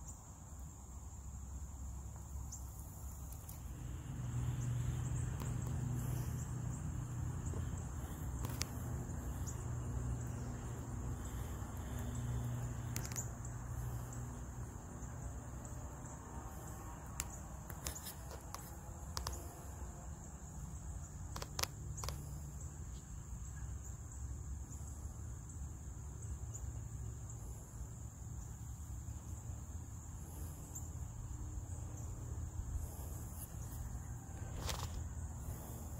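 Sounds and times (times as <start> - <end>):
crickets chirping: 0.0 - 35.9
sharp clicks: 8.2 - 9.6, 11.8 - 13.4, 17.0 - 19.5, 21.2 - 22.3.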